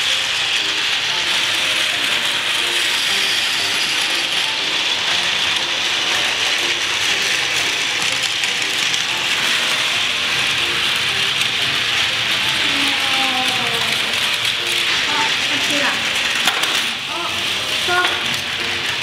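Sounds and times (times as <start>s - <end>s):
toy trains whirring on plastic track: 0.0s - 19.0s.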